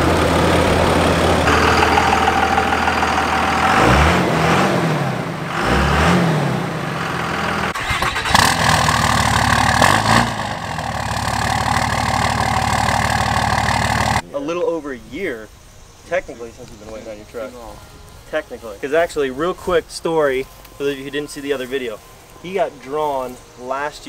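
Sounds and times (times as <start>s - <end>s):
diesel truck engine idling and revving: 0.0s - 14.2s.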